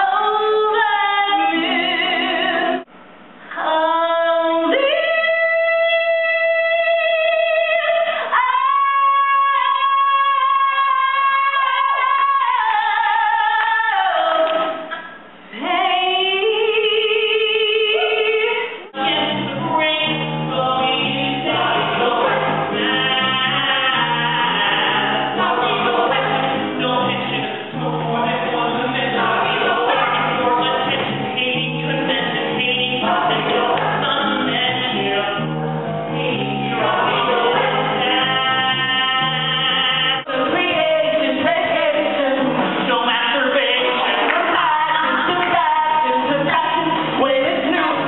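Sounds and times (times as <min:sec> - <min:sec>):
band playing: 0:19.0 - 0:40.2
ensemble chorus singing: 0:19.0 - 0:47.8.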